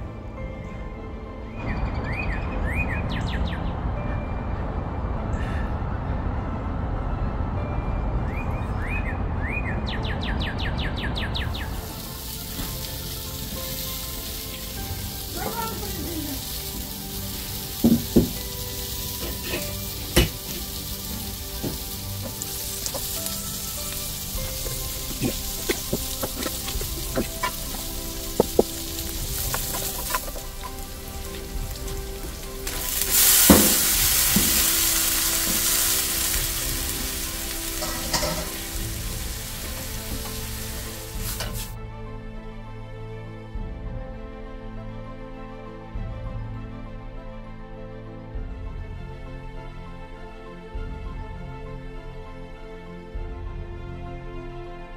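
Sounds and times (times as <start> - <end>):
oil sizzling in a wok: 11.6 - 41.8
utensils knocking on pan: 17.8 - 18.5, 19.2 - 20.8, 21.6 - 30.8, 32.7 - 34.8, 37.8 - 38.8.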